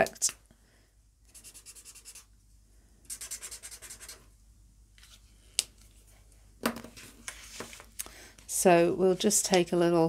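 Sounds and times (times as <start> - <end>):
marker scratching on card: 1.3 - 2.3, 3.1 - 4.3.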